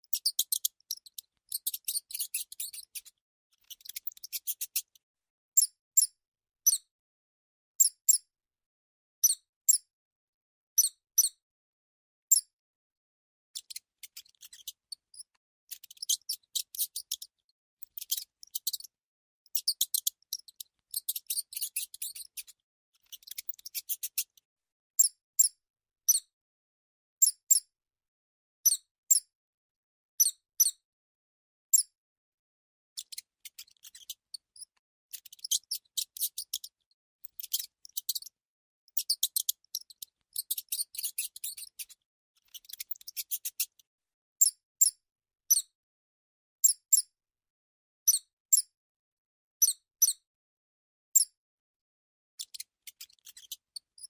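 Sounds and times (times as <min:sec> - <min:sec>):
high-pitched mouse squeaks: 0:00.0 - 0:05.0, 0:05.6 - 0:06.9, 0:07.8 - 0:08.3, 0:09.2 - 0:09.9, 0:10.8 - 0:11.4, 0:12.3 - 0:12.5, 0:13.6 - 0:24.4, 0:25.0 - 0:26.3, 0:27.2 - 0:27.7, 0:28.6 - 0:29.3, 0:30.2 - 0:30.8, 0:31.7 - 0:32.0, 0:33.0 - 0:43.8, 0:44.4 - 0:45.7, 0:46.6 - 0:47.1, 0:48.1 - 0:48.7, 0:49.6 - 0:50.2, 0:51.1 - 0:51.4, 0:52.4 - 0:54.0.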